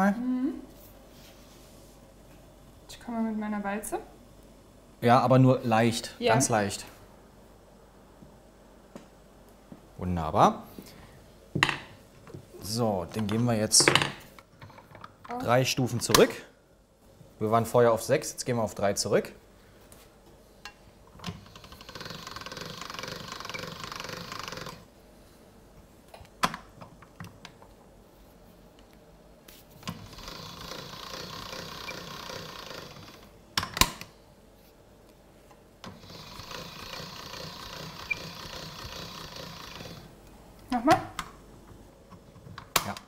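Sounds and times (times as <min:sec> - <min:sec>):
pasta machine rollers rattling: 0:21.3 - 0:24.9, 0:29.8 - 0:33.3, 0:35.9 - 0:40.2.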